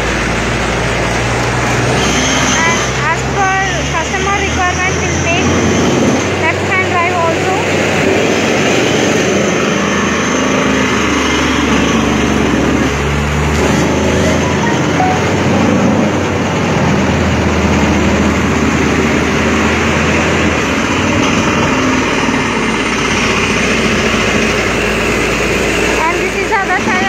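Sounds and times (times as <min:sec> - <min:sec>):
diesel drilling rig drone: 0:00.0 - 0:27.0.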